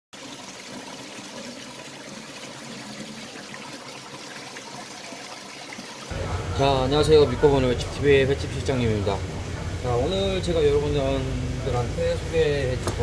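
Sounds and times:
water trickling in fish tank: 0:00.2 - 0:07.8.

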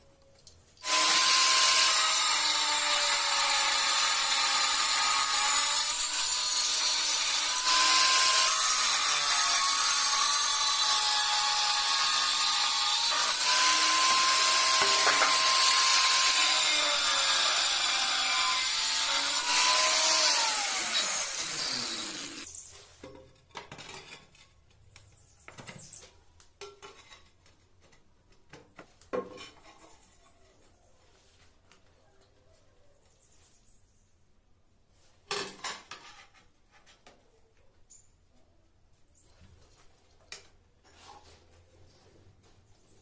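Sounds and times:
angle grinder cutting tile: 0:00.8 - 0:22.7
grinder disc spinning down: 0:13.4 - 0:22.5.

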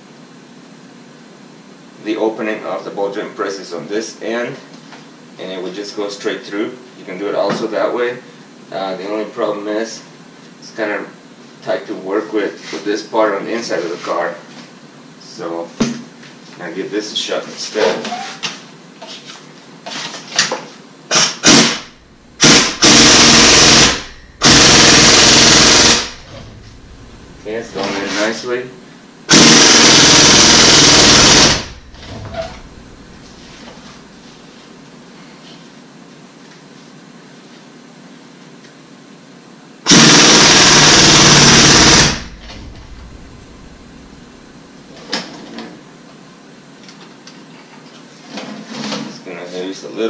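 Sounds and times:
pneumatic impact wrench hammering: 0:21.1 - 0:26.8, 0:29.3 - 0:32.7, 0:39.9 - 0:43.2.

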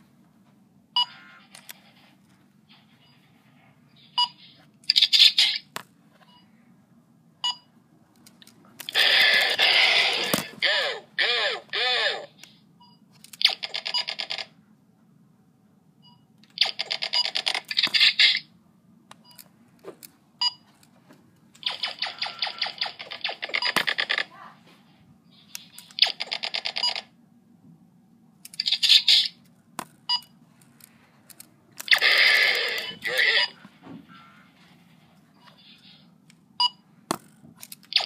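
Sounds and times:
low steady hum: 0:00.0 - 0:38.0
electronic blaster firing pulses: 0:21.6 - 0:24.2.

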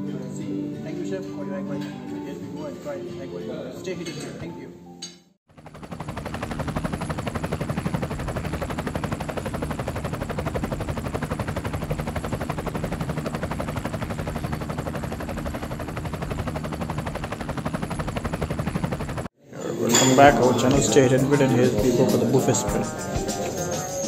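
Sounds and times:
fast rattle of pulses: 0:05.5 - 0:19.3.

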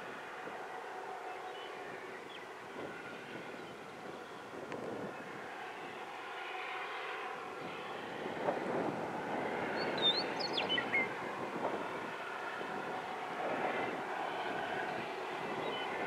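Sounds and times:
diesel locomotives droning: 0:00.0 - 0:16.0.

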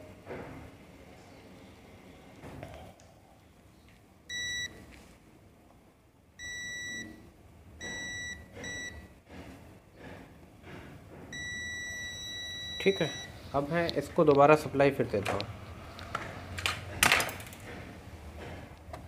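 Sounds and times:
multimeter beeping: 0:04.3 - 0:04.8, 0:06.4 - 0:07.2, 0:07.8 - 0:09.0, 0:11.3 - 0:13.5.

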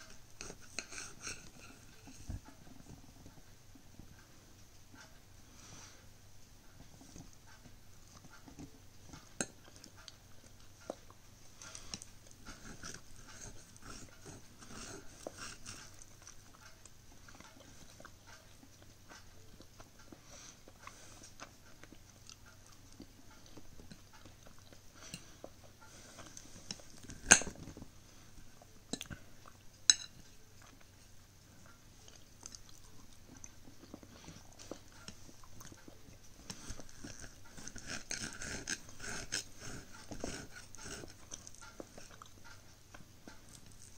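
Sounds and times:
person chewing: 0:00.0 - 0:03.3, 0:06.8 - 0:31.0, 0:31.6 - 0:43.9
cutlery clinking on plate: 0:29.9 - 0:30.2.

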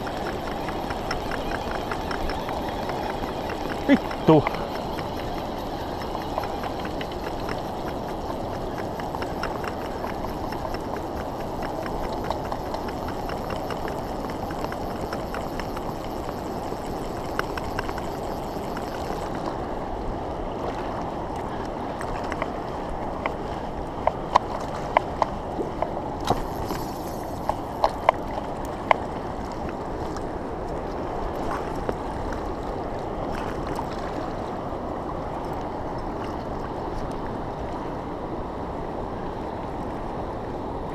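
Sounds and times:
sharp clicks: 0:00.0 - 0:19.5
river current rushing: 0:00.0 - 0:23.8, 0:25.5 - 0:30.6.

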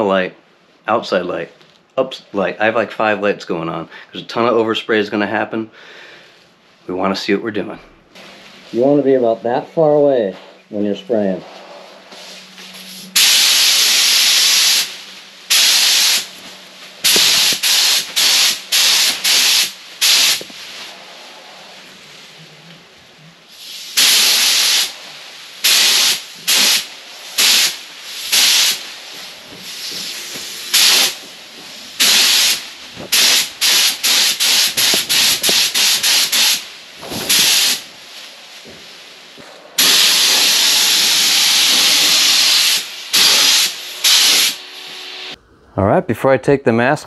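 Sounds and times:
spray gun hissing in bursts: 0:10.9 - 0:22.1, 0:23.4 - 0:45.4.

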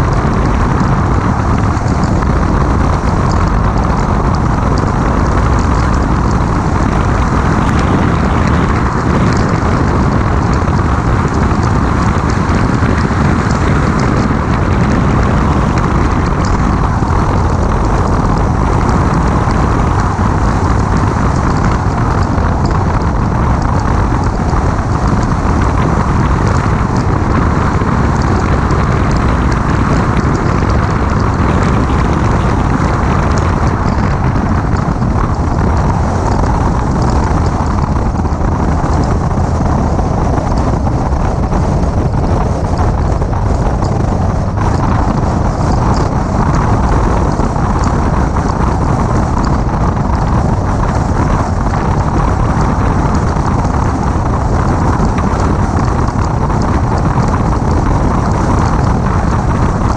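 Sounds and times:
car engine: 0:00.0 - 0:59.9
tyre noise: 0:00.0 - 0:59.9
wind buffeting microphone: 0:00.0 - 0:59.9.

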